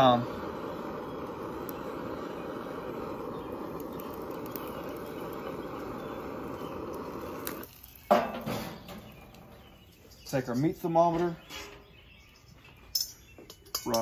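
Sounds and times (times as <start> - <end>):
butane torch hissing: 0.0 - 12.0.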